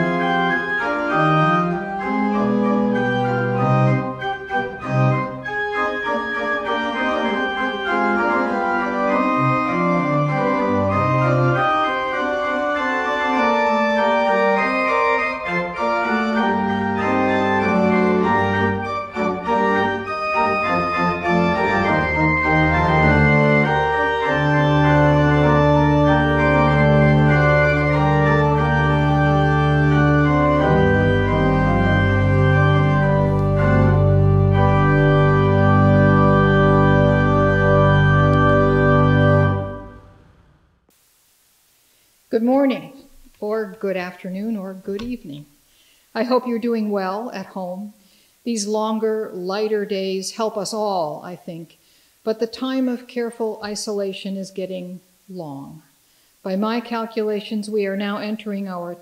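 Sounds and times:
low organ bass notes: 0.0 - 40.9
organ chords: 0.0 - 41.0.

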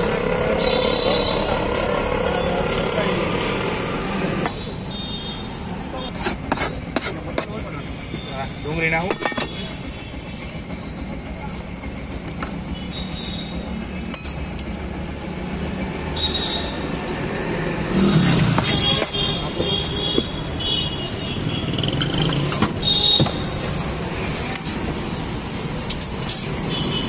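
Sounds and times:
street traffic rumble: 0.0 - 27.0.

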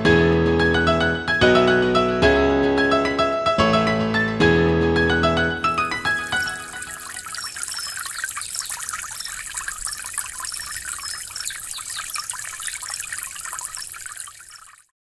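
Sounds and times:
stream trickling over rocks: 5.6 - 15.0.

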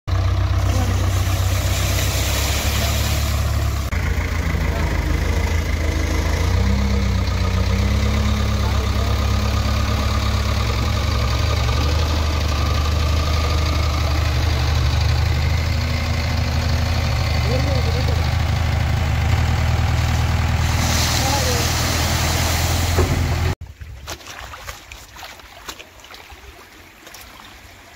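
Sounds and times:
diesel engine idling: 0.1 - 23.6
rushing hiss: 0.7 - 3.8, 20.6 - 23.2.

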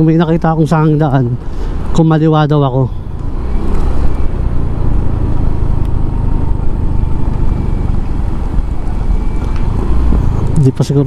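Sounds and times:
wind rumbling on microphone: 0.0 - 10.8
scooter engine running: 4.2 - 11.0.

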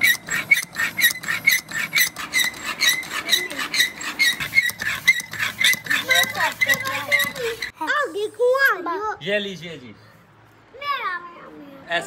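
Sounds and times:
air pump squeaky hiss: 0.0 - 7.8.

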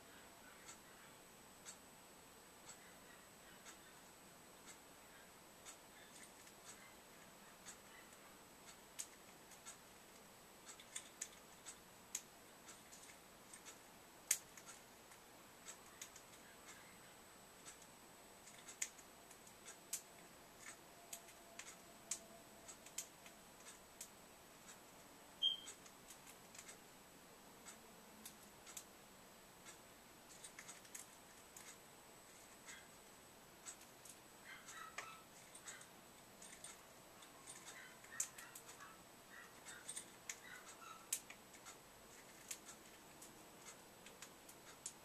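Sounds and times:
short high bird chirp: 25.4 - 25.7.

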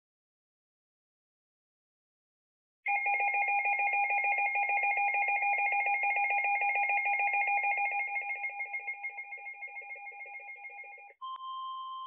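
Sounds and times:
pulsing two-tone alarm beep: 2.9 - 12.0.

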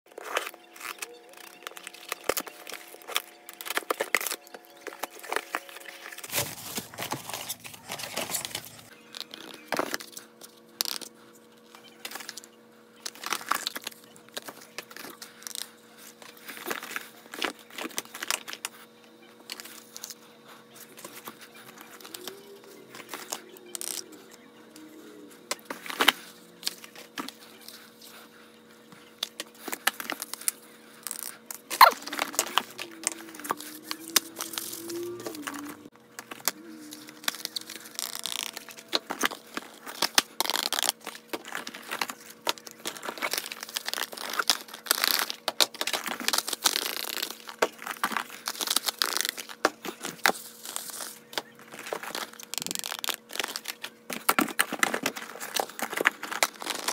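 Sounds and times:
packaging crinkling and rustling: 0.1 - 10.2, 29.2 - 56.9
faint steady hum: 0.2 - 56.9
packing tape peeling: 29.6 - 51.1, 51.7 - 56.9.

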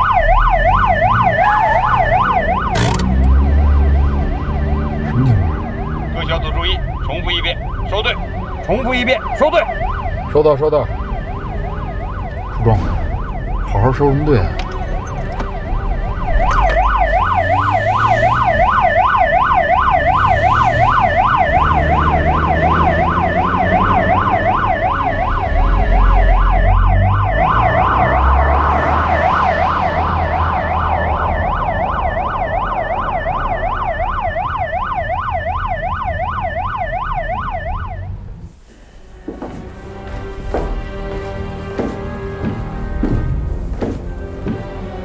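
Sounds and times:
car engines rumbling by: 0.0 - 34.8
police sirens warbling: 0.0 - 38.4.

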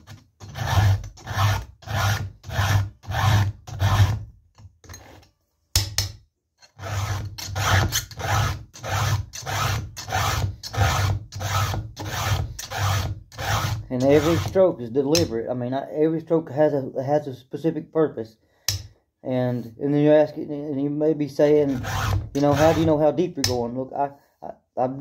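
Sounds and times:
file rasping on saw chain: 0.0 - 4.2, 6.6 - 14.7, 21.6 - 23.6.

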